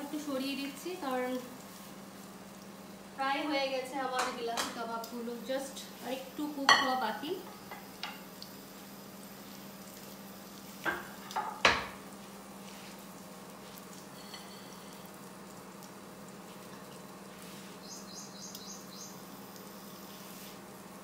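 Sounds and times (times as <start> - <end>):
frying hiss: 0.0 - 21.0
utensil knocking on frying pan: 10.8 - 12.0
faint high chirps: 17.8 - 19.3.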